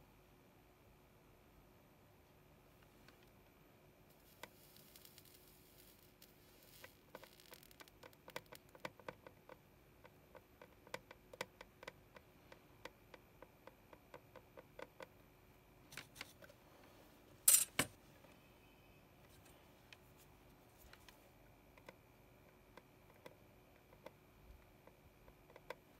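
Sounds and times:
soldering iron ticking on pins: 7.8s - 15.2s, 21.8s - 25.9s.

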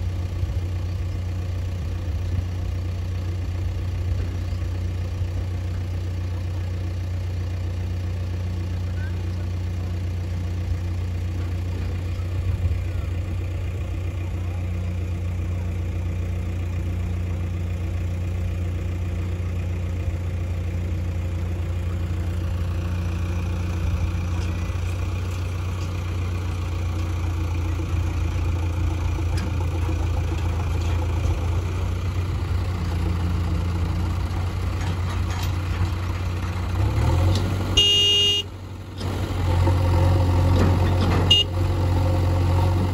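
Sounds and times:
diesel engines humming: 0.0s - 42.9s
horn toot: 37.8s - 38.5s, 41.3s - 41.6s.

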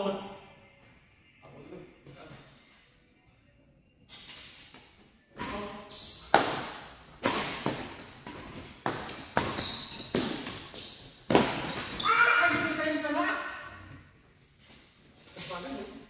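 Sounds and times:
rackets striking shuttlecock: 6.3s - 12.0s.

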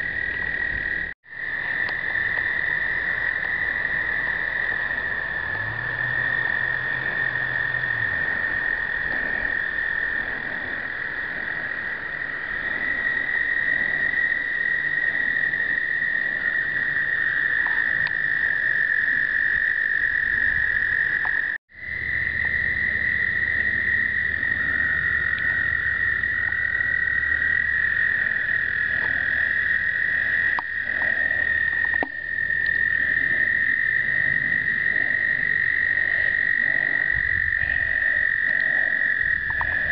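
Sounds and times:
toads trilling in chorus: 0.0s - 39.9s.

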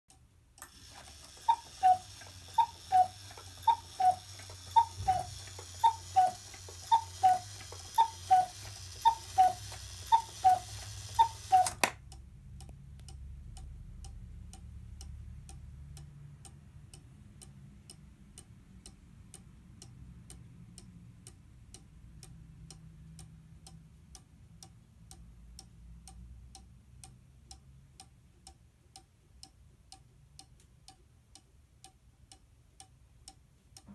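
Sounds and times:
clock ticking: 0.1s - 33.9s
clock mechanism whirring: 0.6s - 11.9s
cuckoo clock calls: 0.6s - 11.9s.

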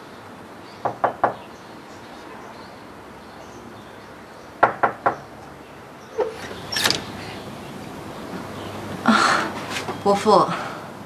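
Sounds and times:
knuckles knocking on door: 4.6s - 5.2s.

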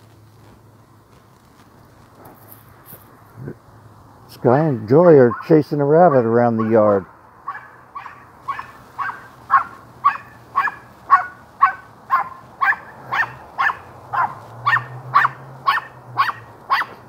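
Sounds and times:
small dog yapping: 4.7s - 5.5s, 6.1s - 17.0s.

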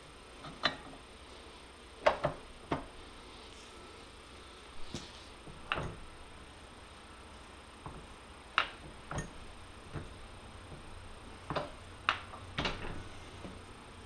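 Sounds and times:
faint low hum: 0.0s - 14.0s
metal clicks and knocks: 11.5s - 13.0s.

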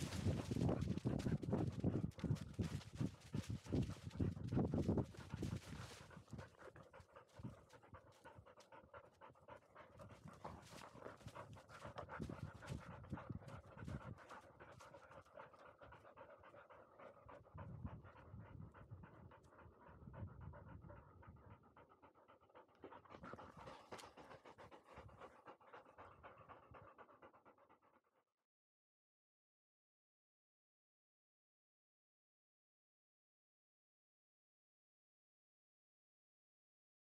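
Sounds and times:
dog panting fast: 0.0s - 28.1s.

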